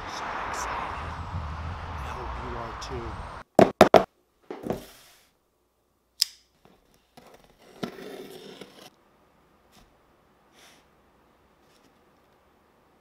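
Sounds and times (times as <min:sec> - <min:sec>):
knocks on cardboard box: 0:03.6 - 0:04.1
sharp click: 0:06.2 - 0:06.5.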